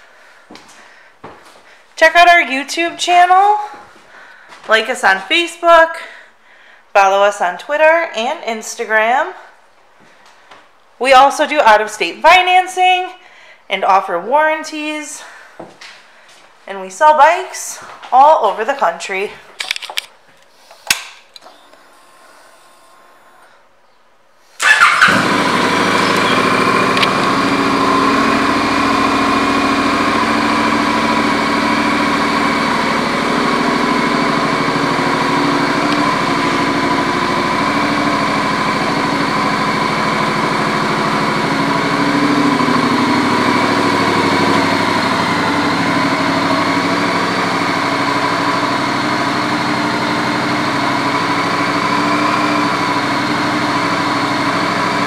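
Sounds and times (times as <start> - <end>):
motorcycle engine idling: 24.6 - 55.0.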